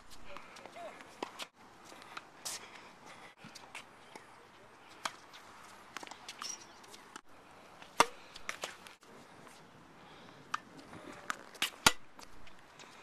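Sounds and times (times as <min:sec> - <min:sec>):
tennis ball hits: 0:08.0 - 0:08.8, 0:10.5 - 0:12.1.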